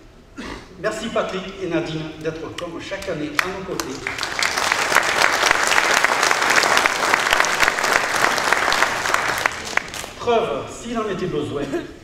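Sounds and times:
audience applauding: 3.4 - 10.2.

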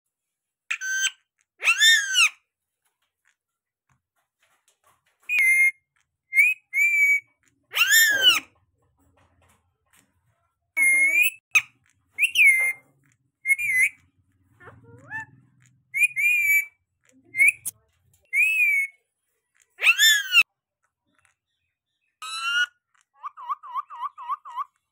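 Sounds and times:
parakeet shrill whistled calls: 0.7 - 2.4, 5.3 - 8.4, 12.2 - 12.8, 13.4 - 14.0, 15.9 - 16.8, 18.3 - 19.0, 19.8 - 20.4, 22.2 - 24.7.

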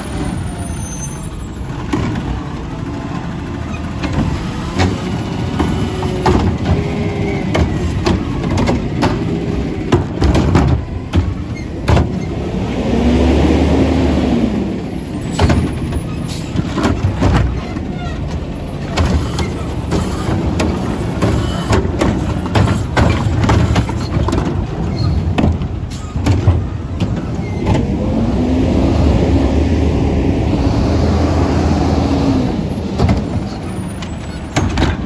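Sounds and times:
garbage truck engine revving: 0.0 - 35.0
trash cart knocks and bangs: 4.0 - 12.4, 15.3 - 17.9, 18.8 - 27.9, 32.9 - 35.0.

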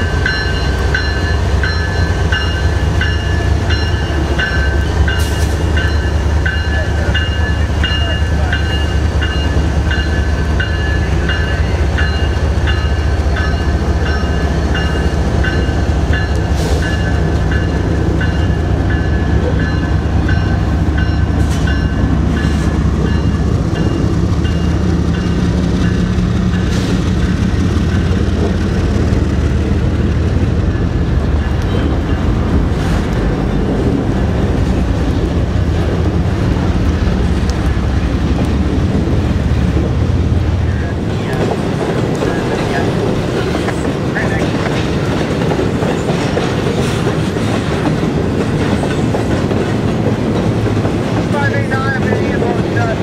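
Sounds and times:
diesel locomotive engine rumble: 0.0 - 53.0
train wheels on rails: 0.0 - 53.0.

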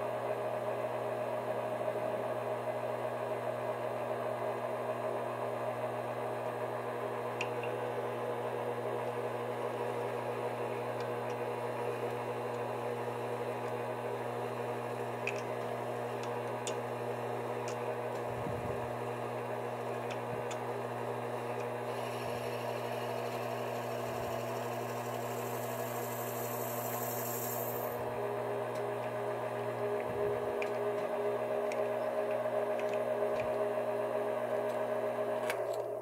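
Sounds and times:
lathe motor hum and whine: 0.0 - 35.5
drill bit cutting hiss: 21.8 - 28.0.

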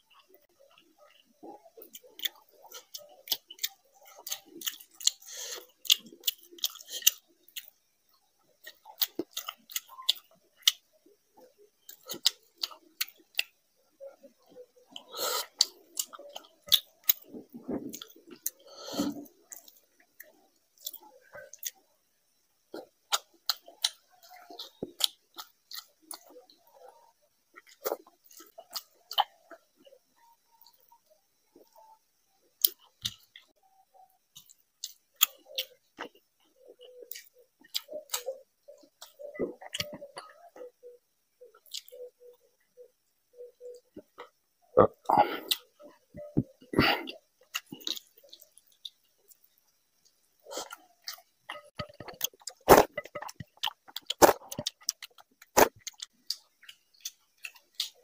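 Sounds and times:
wet chewing: 0.1 - 10.8, 14.2 - 21.8, 43.7 - 58.0
mouth clicks and lip smacks: 37.0 - 40.7, 43.7 - 58.0.

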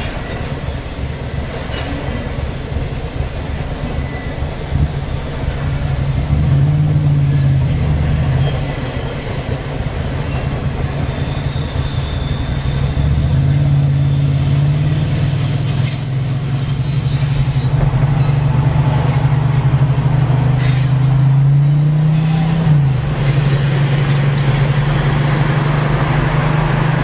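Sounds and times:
car engine hum and road noise: 5.8 - 8.7, 12.4 - 27.0.

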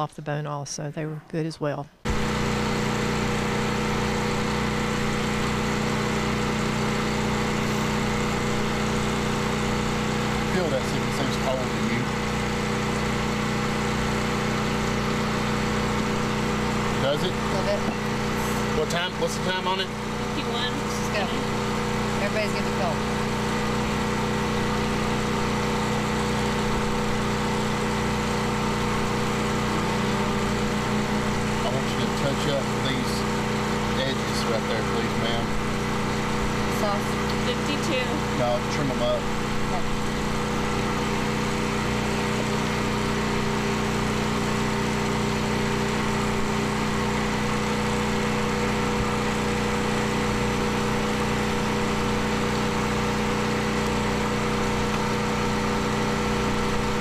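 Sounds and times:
small engine running: 2.0 - 57.0.

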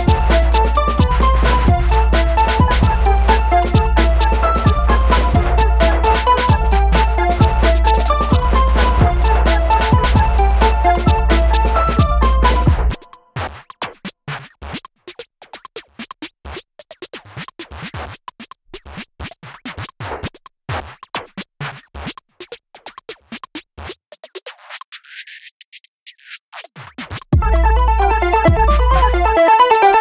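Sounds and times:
background music: 0.0 - 13.3, 27.4 - 30.0.

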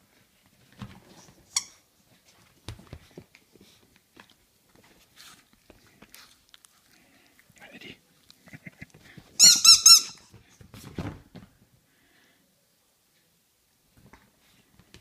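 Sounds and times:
rubber toy squeak: 9.4 - 10.3.

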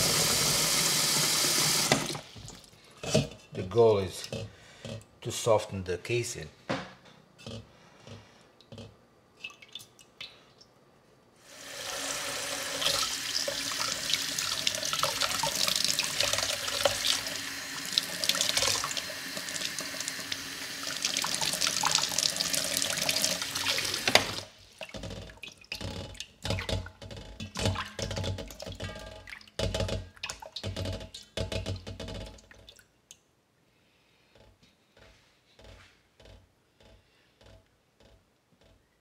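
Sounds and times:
small water splashes: 9.4 - 10.6.

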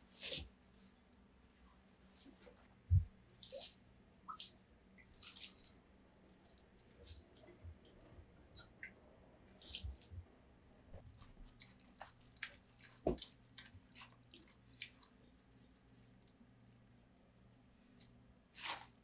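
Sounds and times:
wet squishes and drips: 3.3 - 10.2, 11.0 - 16.9.

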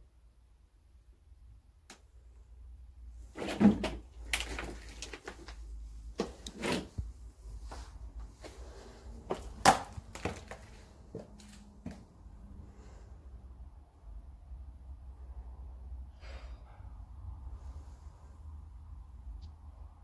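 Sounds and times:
footsteps crunching on debris: 9.3 - 12.0.

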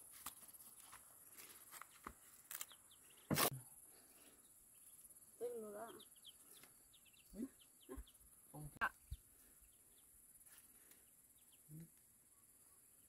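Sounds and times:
ducklings peeping: 5.6 - 8.2.

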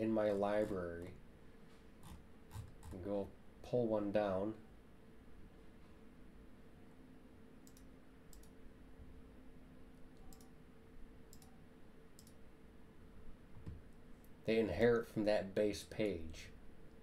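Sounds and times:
low steady hum: 0.0 - 17.0
computer mouse clicks: 7.6 - 8.6, 10.0 - 10.6, 11.3 - 11.6, 12.2 - 12.4.

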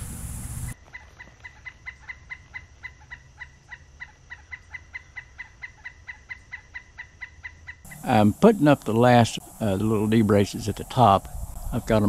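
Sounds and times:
low steady hum: 7.9 - 12.0.

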